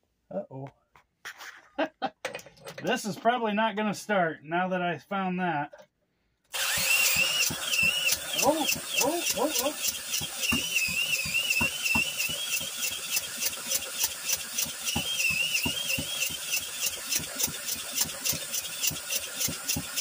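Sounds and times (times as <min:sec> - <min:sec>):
cordless drill motor whining: 0:06.5 - 0:20.0
engine chuffing through compression: 0:06.6 - 0:20.0.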